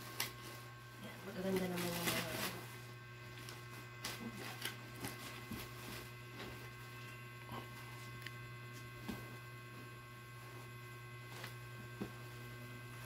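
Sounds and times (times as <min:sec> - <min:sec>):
clothes and plastic rustling: 0:00.0 - 0:07.2
steady low hum: 0:00.0 - 0:13.0.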